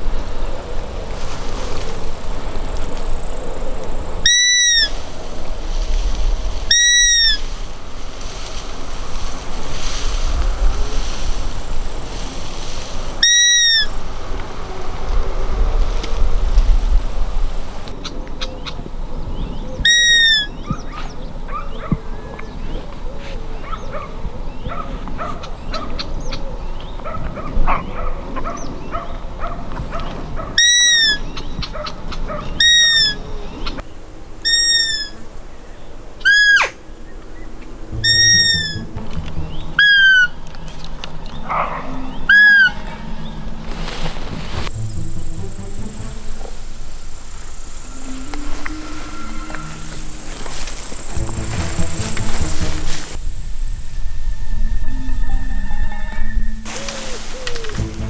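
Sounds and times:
high whistle-like bleats: 47.8s - 50.6s.

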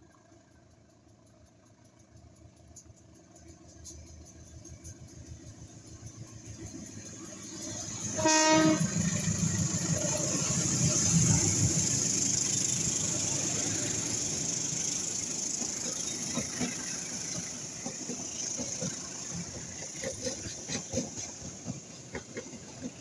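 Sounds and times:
train coaches rumbling past: 0.1s - 23.0s.

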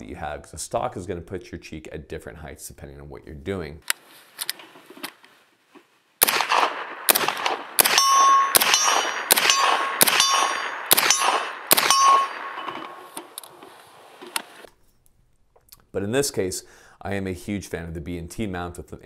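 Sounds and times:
suppressed gunshots: 6.2s - 13.4s
metallic ring: 7.8s - 13.2s.

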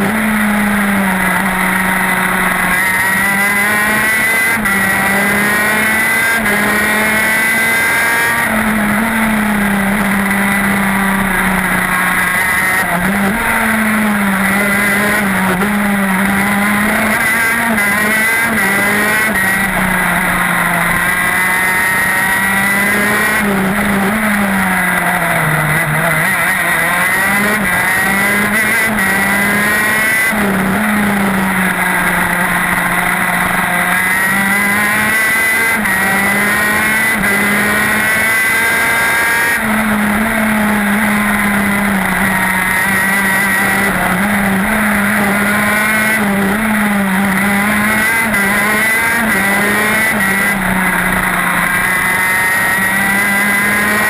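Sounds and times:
kart engine revving: 0.0s - 54.0s.

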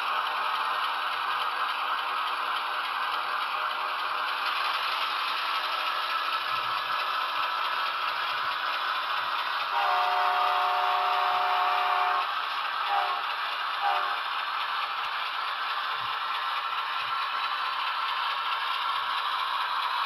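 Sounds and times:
diesel engine sound from small speaker: 0.0s - 20.0s
model train cars rattling on track: 0.0s - 20.0s
locomotive horn chord: 9.7s - 12.3s, 12.9s - 13.2s, 13.8s - 14.2s.

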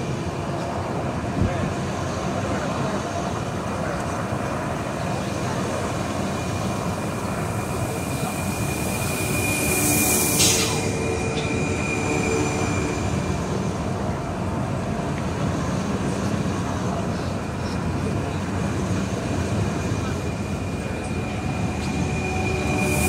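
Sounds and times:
train wheels rumbling: 0.0s - 23.0s
thin high whine: 6.4s - 13.9s
brief hiss: 7.9s - 11.0s.

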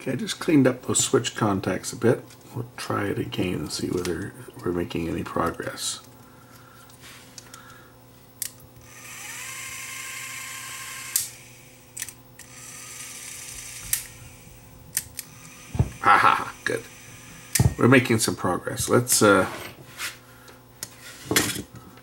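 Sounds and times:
small motor whirring: 8.8s - 18.2s.

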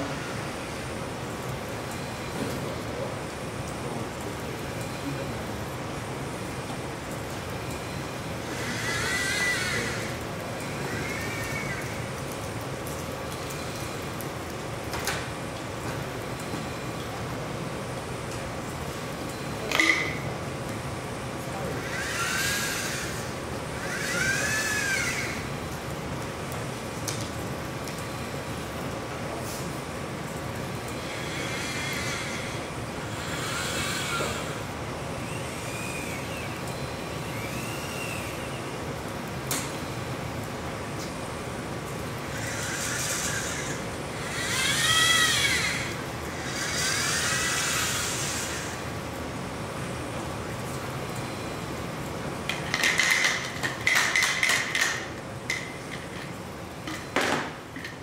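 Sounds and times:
steady mechanical hum: 0.0s - 58.0s
robot actuators whining: 7.6s - 14.2s, 21.6s - 25.8s, 30.7s - 39.7s, 42.1s - 49.0s.

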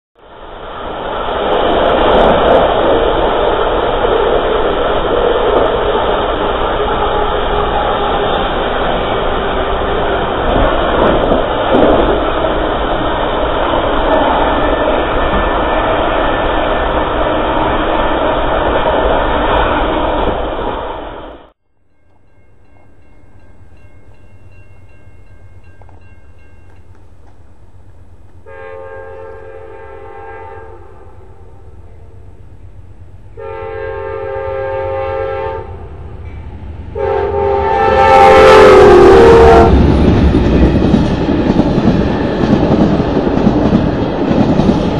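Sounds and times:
train rumble and wind noise: 0.2s - 44.9s
locomotive chime horn: 28.4s - 32.3s, 33.3s - 35.9s, 36.9s - 39.8s.

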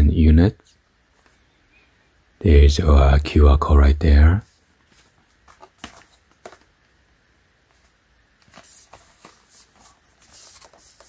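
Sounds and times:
rustling handling noise: 4.4s - 6.9s, 7.6s - 11.0s.

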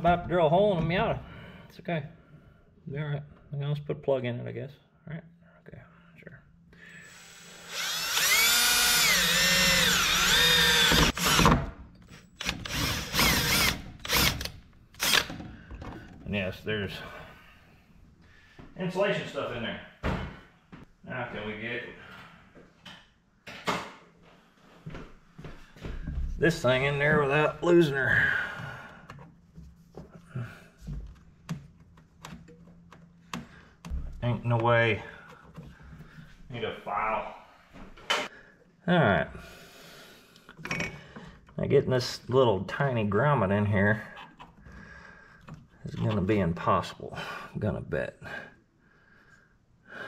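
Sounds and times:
power drill boring sheet metal: 6.9s - 11.5s, 12.4s - 15.4s.

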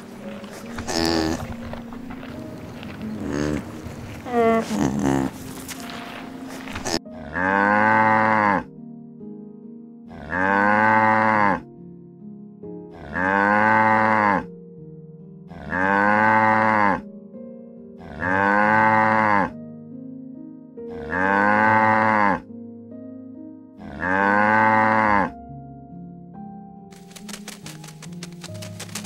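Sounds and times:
soft background music: 0.0s - 29.0s
cow mooing: 3.1s - 5.4s, 6.8s - 8.7s, 10.1s - 11.6s, 12.9s - 14.5s, 15.5s - 17.0s, 18.0s - 19.6s, 20.9s - 22.4s, 23.8s - 25.3s.

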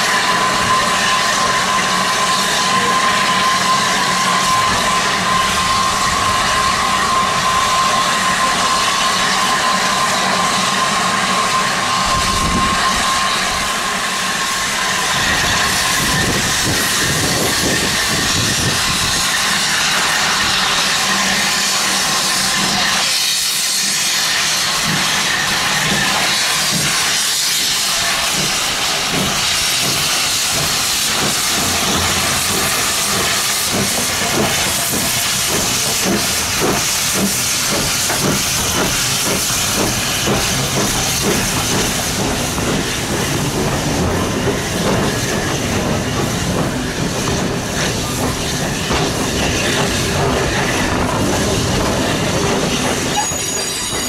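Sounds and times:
steam hissing: 0.0s - 54.0s.

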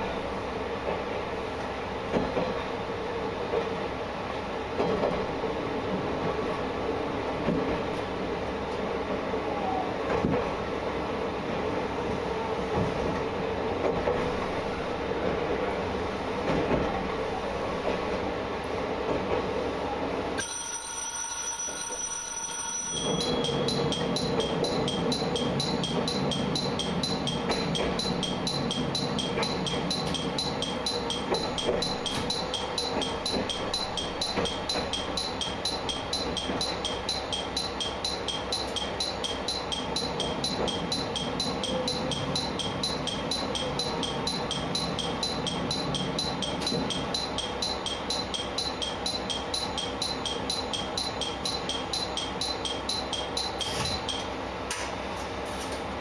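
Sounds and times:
train rumbling: 0.0s - 20.5s, 21.4s - 56.0s.

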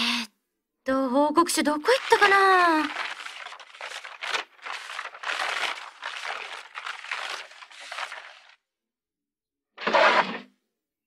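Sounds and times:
rummaging through papers: 1.8s - 8.6s.

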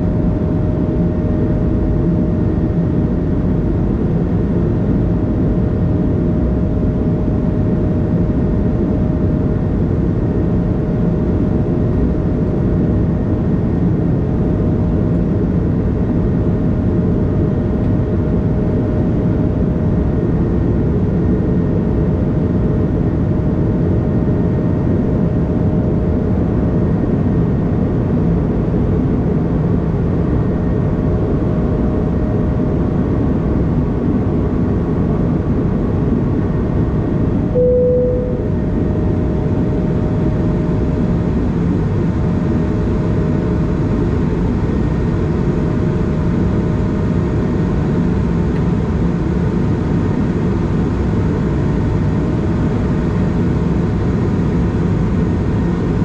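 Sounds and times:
airplane cabin roar: 0.0s - 56.0s
faint steady whine: 37.4s - 41.5s.

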